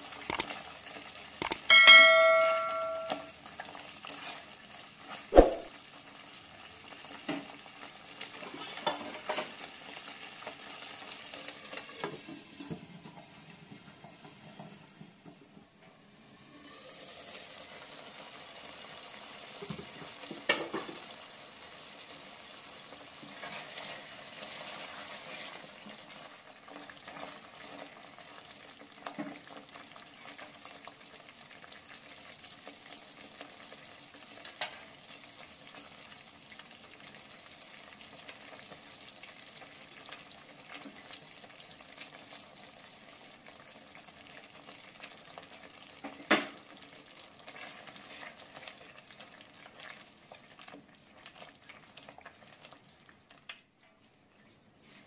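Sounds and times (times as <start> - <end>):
spatula stirring sizzling gravy: 0.0 - 14.8, 17.1 - 55.0
gravy simmering under lid: 16.4 - 55.0.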